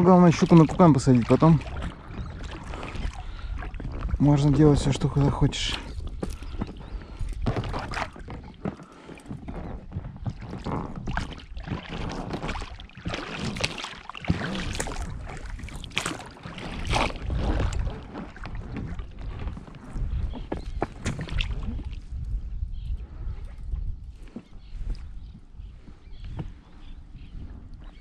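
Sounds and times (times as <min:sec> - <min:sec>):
gear knocking and clattering in boat: 0:00.0 - 0:21.8
wind rumble on microphone: 0:00.0 - 0:28.0.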